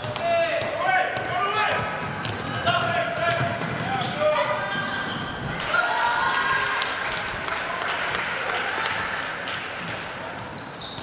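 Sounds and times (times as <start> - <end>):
spectators clapping and cheering: 5.6 - 10.4.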